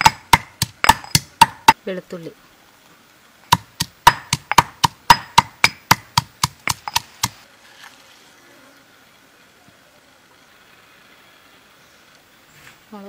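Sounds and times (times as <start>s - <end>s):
stone pestle knocking in mortar: 0.0s - 1.8s, 3.5s - 7.4s.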